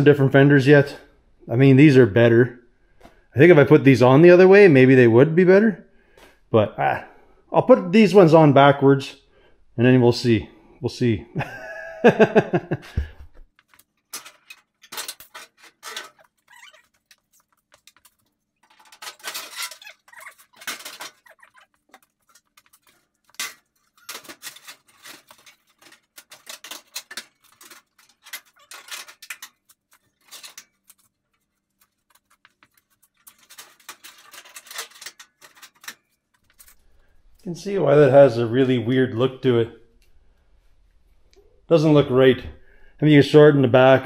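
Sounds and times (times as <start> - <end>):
metal clinks and scrapes: 13.6 - 37.2.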